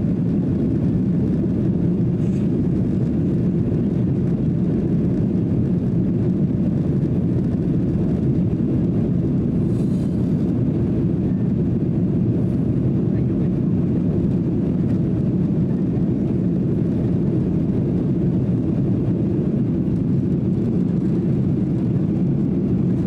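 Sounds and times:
airplane cabin engine roar: 0.0 - 23.0.

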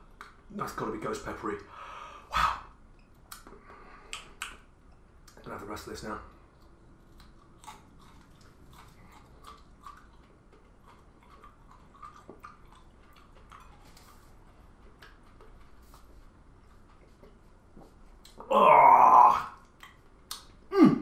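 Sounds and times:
person chewing with wet clicks: 2.9 - 5.5, 6.3 - 18.5, 19.6 - 20.7.

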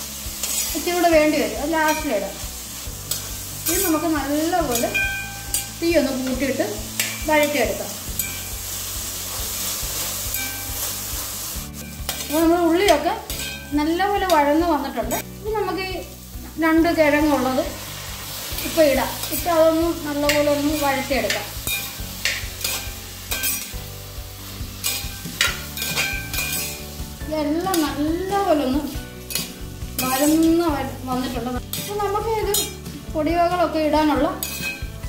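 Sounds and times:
food sizzling in oil: 0.0 - 35.0
metal spoon scraping pot: 24.8 - 26.9, 29.3 - 30.6, 31.7 - 32.9, 34.4 - 34.9.

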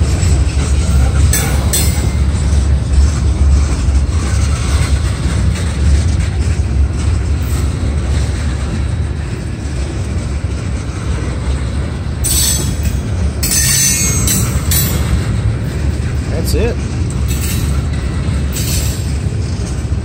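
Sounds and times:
train wheels rumbling on rail: 0.0 - 20.0
short metal clanks: 12.2 - 15.3.

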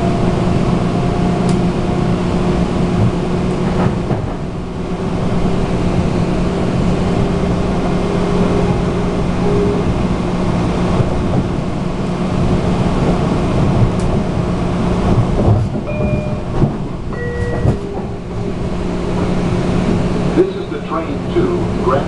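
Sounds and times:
train wheels rumbling on rails: 0.0 - 22.0
track knocks: 2.8 - 4.6, 10.6 - 22.0.

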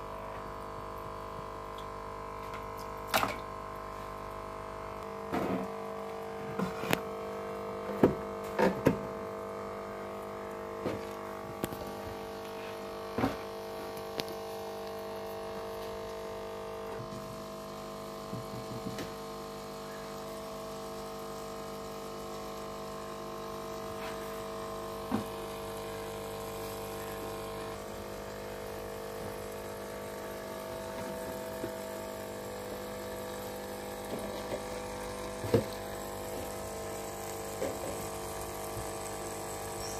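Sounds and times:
aquarium filter pump humming: 0.0 - 39.9.

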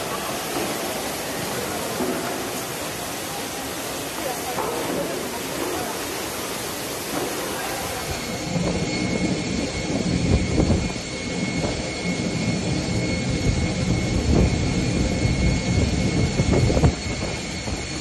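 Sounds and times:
water rushing and spraying: 0.0 - 8.3
jet engines whining: 0.0 - 18.0.

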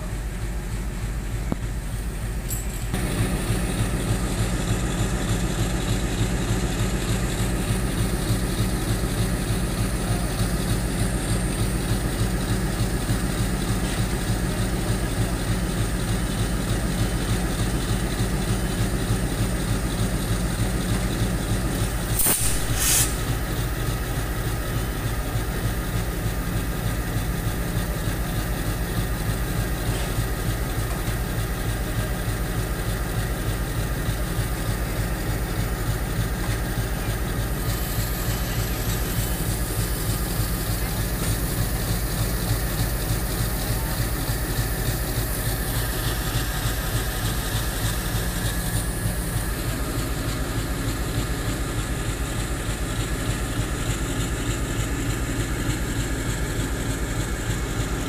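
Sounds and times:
locomotive engine running: 0.0 - 58.0
short hissing bursts: 22.0 - 26.2, 37.5 - 49.4.

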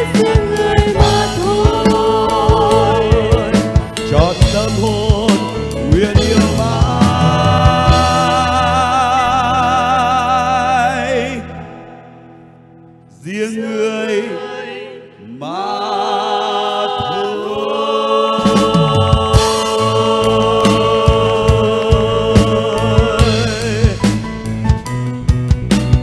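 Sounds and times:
drum strikes: 0.0 - 9.2, 18.4 - 26.0
live band: 0.0 - 13.1, 17.7 - 26.0
group singing in harmony: 0.0 - 24.3.

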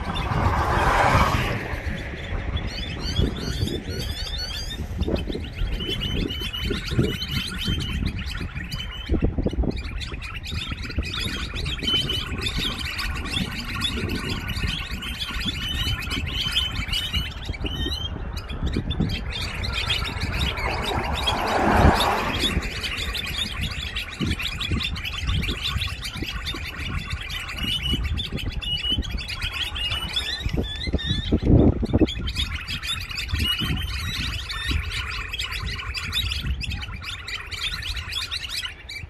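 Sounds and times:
low rumble: 0.0 - 5.5
songbirds chirping: 0.0 - 39.0.

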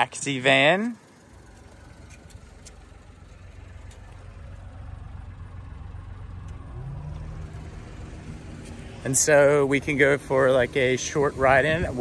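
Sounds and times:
small engine idling: 0.0 - 12.0.

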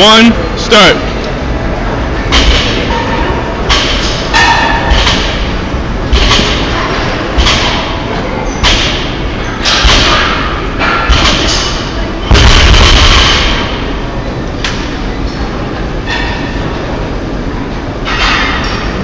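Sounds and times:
barbells thudding on rubber floor: 3.7 - 6.7, 7.3 - 8.0, 8.6 - 13.8.

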